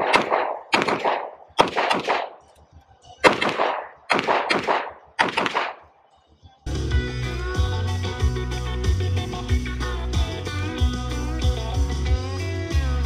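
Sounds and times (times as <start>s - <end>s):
handgun shots echoing: 0.0s - 2.5s, 3.2s - 6.0s
guitar music: 6.7s - 13.0s.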